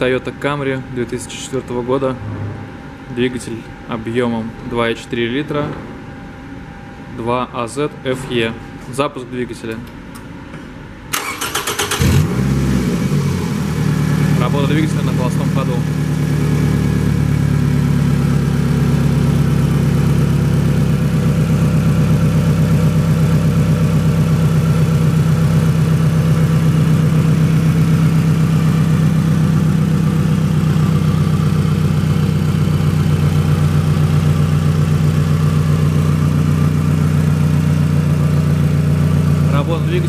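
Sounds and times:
car engine idling: 11.2s - 40.0s.

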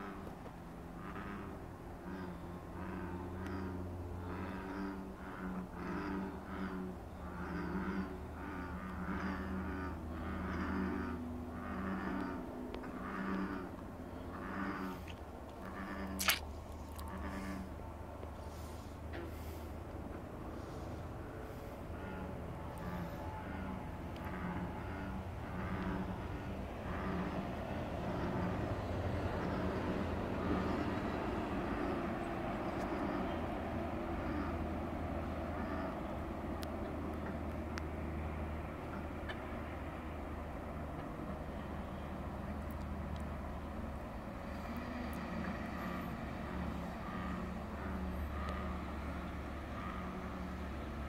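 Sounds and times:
bullfrogs croaking: 0.0s - 17.9s, 20.6s - 36.4s, 44.5s - 51.0s.

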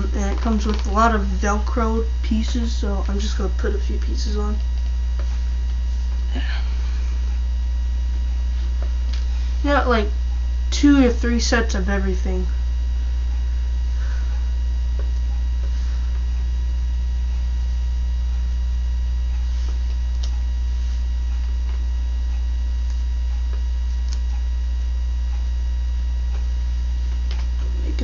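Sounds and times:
electrical mains hum: 0.0s - 28.0s.

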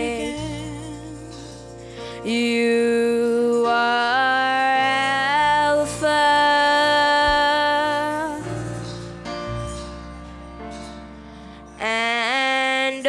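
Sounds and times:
women singing gospel song: 0.0s - 8.6s
soft band accompaniment: 0.0s - 13.0s.

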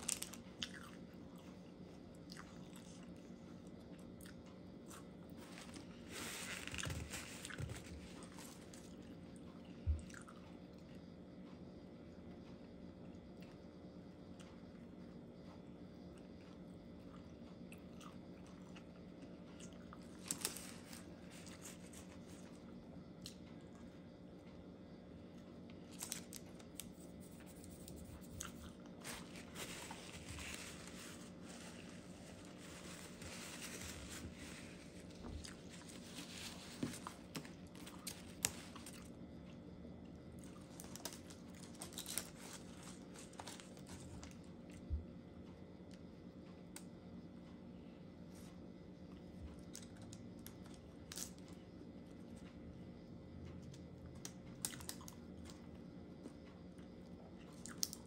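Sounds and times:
paper wrapper crinkling: 5.4s - 8.0s, 27.6s - 39.0s.

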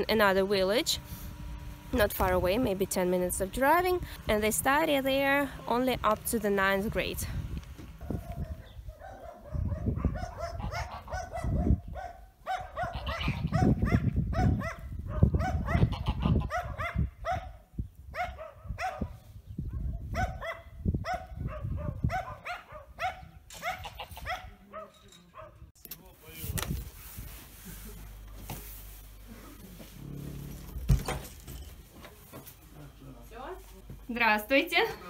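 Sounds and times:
dog barking: 8.0s - 25.6s.

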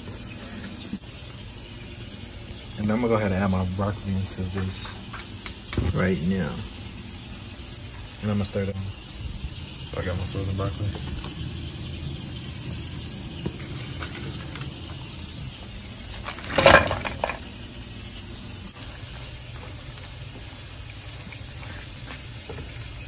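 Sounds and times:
low cooking noise: 0.0s - 23.0s.

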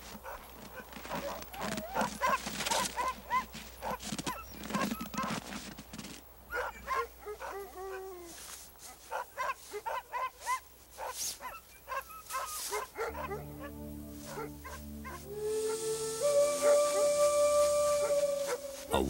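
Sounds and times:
dogs yelping barks: 0.2s - 5.0s, 6.5s - 8.1s, 9.1s - 15.2s
soft music with held notes: 13.0s - 17.7s.

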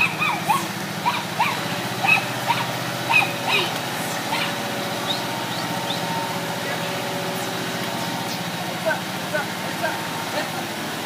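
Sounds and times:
short high squeals: 0.0s - 8.7s
tractor engine humming: 0.0s - 11.0s.

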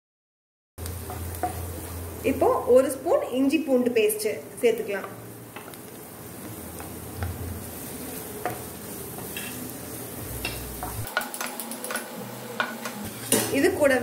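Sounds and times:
onions sizzling in oil: 0.8s - 14.0s
spatula scraping and tapping pan: 1.0s - 2.0s, 5.0s - 9.7s, 10.4s - 13.6s.

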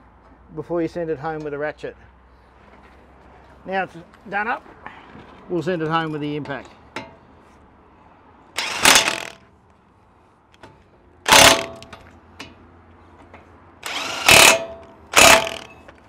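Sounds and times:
impact wrench bursts: 8.6s - 9.4s, 11.3s - 12.0s, 13.8s - 15.9s.

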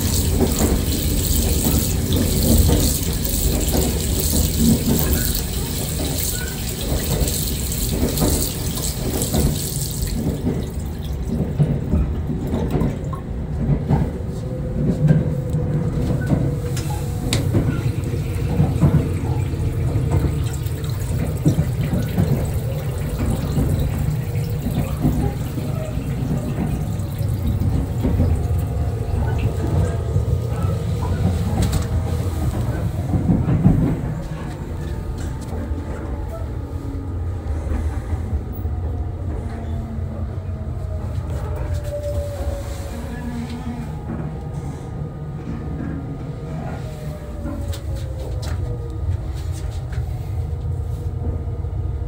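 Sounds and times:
water running from tap: 0.0s - 11.5s, 17.3s - 32.6s
train rumble: 0.0s - 52.0s.

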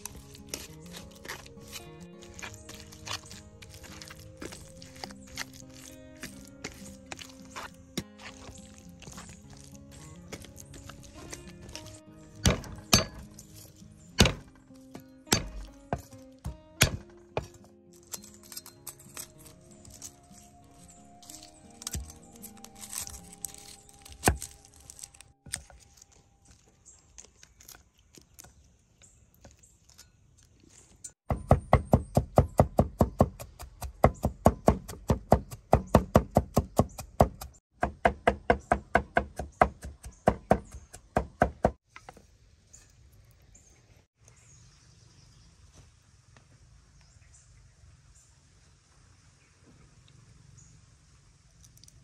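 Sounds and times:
cleaver chopping on wooden board: 12.4s - 13.2s, 14.2s - 14.5s, 15.3s - 17.5s, 31.3s - 41.8s.

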